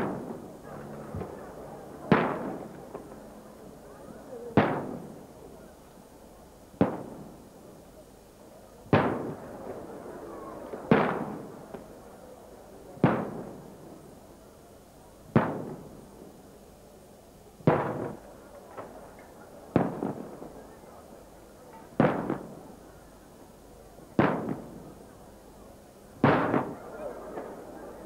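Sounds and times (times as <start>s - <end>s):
rolling echo: 26.2s - 28.0s.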